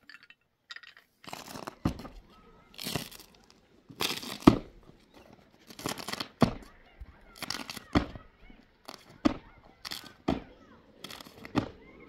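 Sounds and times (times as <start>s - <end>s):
rough crunching strokes: 1.2s - 11.7s
dull thump: 1.8s - 2.2s, 4.4s - 4.9s, 6.4s - 6.7s, 9.1s - 9.6s, 11.5s - 11.8s.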